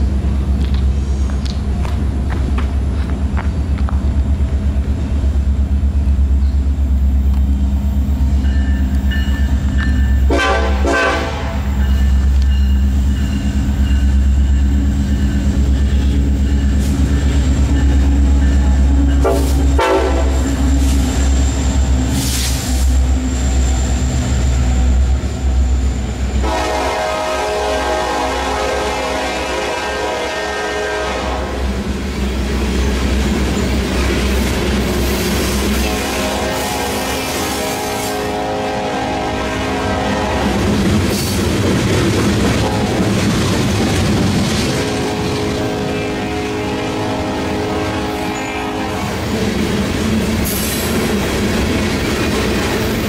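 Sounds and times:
diesel locomotive engine rumble: 0.0 - 53.0
train cars rolling past: 0.0 - 53.0
locomotive horn blasts: 10.2 - 11.8, 19.2 - 20.6, 26.3 - 31.7, 35.6 - 40.7, 44.7 - 49.3.

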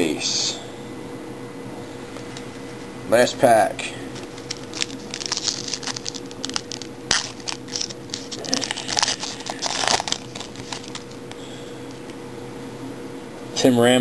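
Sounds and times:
card pack wrapper tearing: 4.2 - 11.2.

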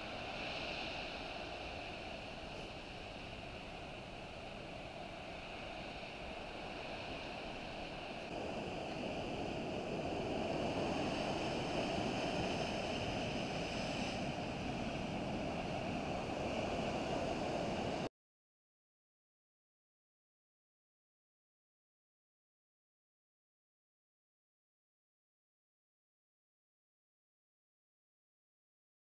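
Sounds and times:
surf washing over rocky shore: 0.0 - 18.1.

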